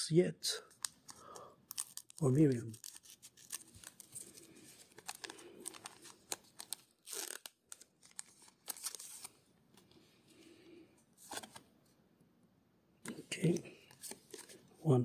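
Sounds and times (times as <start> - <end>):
foil wrapper crinkling: 0.8 - 9.3.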